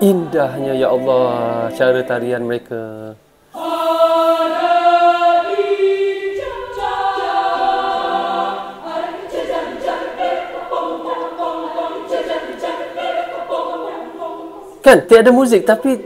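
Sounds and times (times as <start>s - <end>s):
choir singing a cappella: 0.0s - 16.0s.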